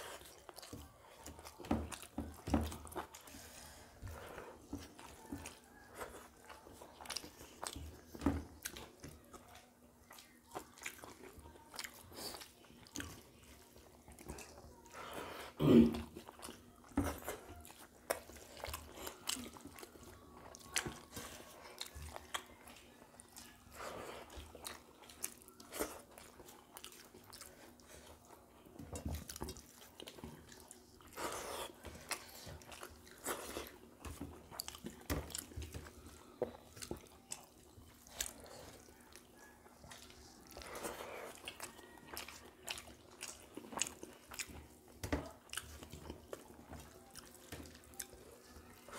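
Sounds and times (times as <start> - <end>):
chewing and mouth smacking: 0.0 - 15.2, 15.9 - 48.9.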